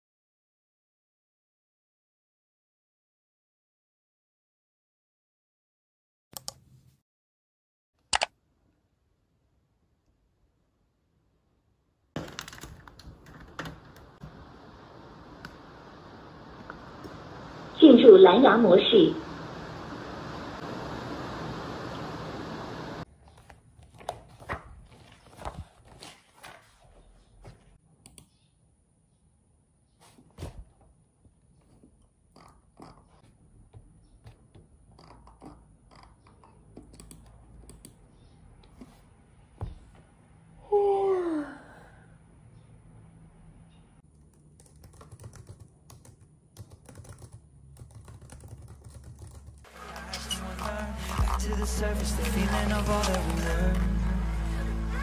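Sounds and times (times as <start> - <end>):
steady hiss: 13.7 - 23.0
book pages flipping: 23.1 - 27.8, 49.7 - 54.1
music: 49.7 - 55.0.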